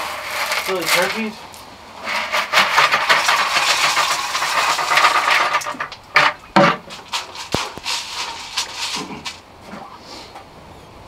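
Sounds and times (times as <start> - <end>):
dry feed pouring into metal feeder: 0.0 - 1.4, 2.1 - 6.3, 6.9 - 9.4
bucket and feeder knocks: 2.1 - 9.4.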